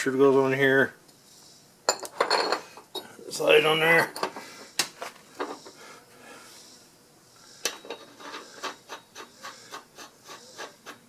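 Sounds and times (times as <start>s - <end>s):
faint metal rubbing: 6.4s - 11.0s.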